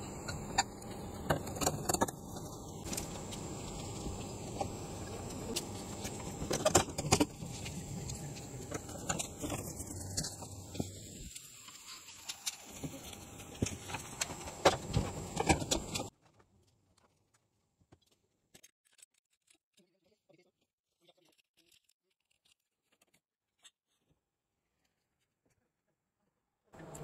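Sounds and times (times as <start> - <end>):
steady hiss with high whine: 0.0 - 16.1.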